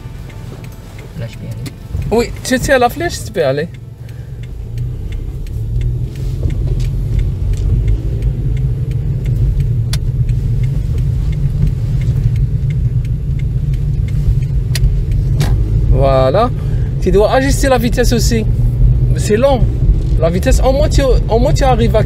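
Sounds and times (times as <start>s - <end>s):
car engine rumble from inside: 0.0s - 22.0s
road noise on wet road: 0.0s - 22.0s
light clicks: 0.2s - 15.9s.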